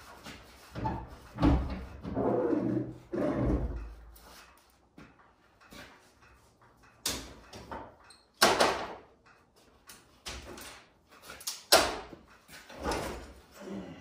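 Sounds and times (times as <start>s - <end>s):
tools and parts clattering: 3.5s - 13.6s.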